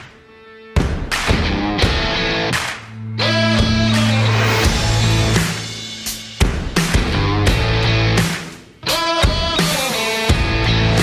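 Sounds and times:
rock music with electric guitar: 0.0s - 11.0s
bending guitar note: 1.6s - 6.0s.

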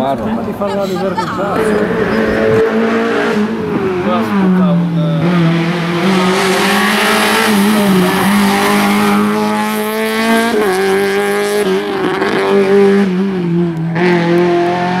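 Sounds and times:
rally car engine revving: 1.4s - 15.0s.

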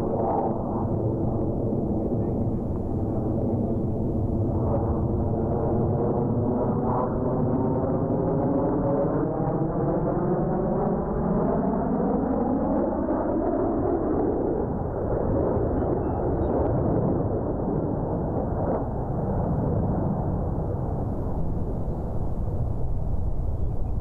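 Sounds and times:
jet engines roaring past: 0.0s - 24.0s.

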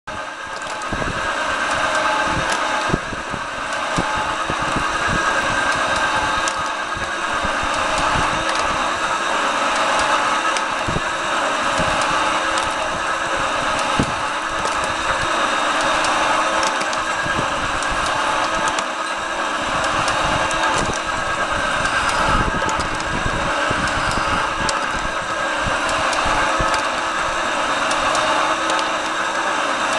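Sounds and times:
metal shaper cutting: 0.1s - 29.9s
sharp clicks: 5.6s - 8.9s, 11.6s - 13.0s, 13.7s - 18.9s, 19.8s - 21.2s, 21.8s - 23.2s, 27.8s - 29.2s.

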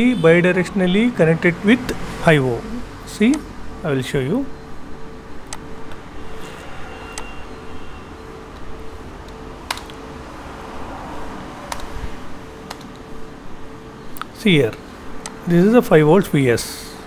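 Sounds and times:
faint constant tone: 0.0s - 17.0s
keyboard clicks: 8.5s - 10.0s, 11.7s - 12.0s, 12.6s - 13.1s.

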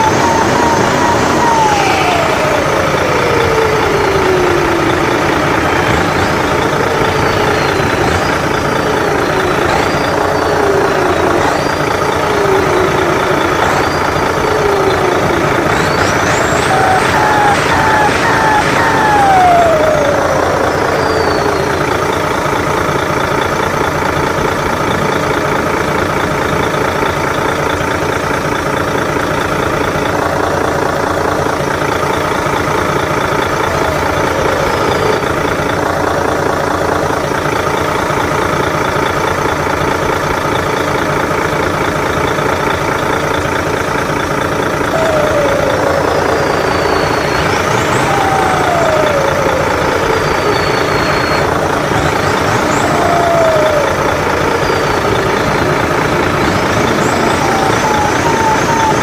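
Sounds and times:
turbo whistle: 0.0s - 22.3s, 44.8s - 59.0s
simulated diesel truck engine: 0.0s - 59.0s.

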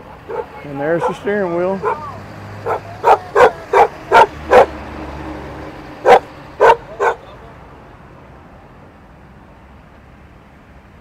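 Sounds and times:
dog barking loudly: 0.2s - 4.8s, 6.0s - 7.3s.

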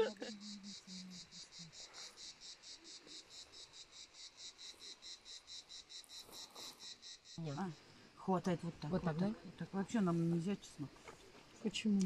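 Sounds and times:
faint insect chirping: 0.0s - 12.0s.

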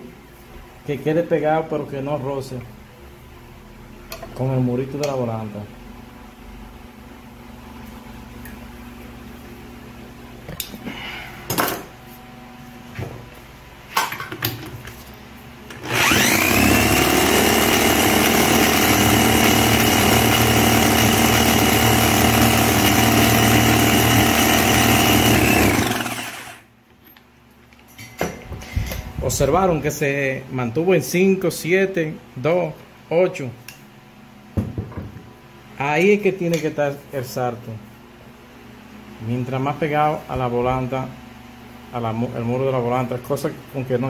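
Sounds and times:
electric drill whine: 15.7s - 26.7s.

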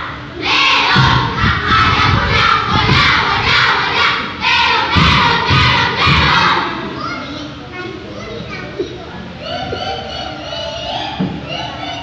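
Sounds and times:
children reciting in unison: 0.0s - 6.9s.

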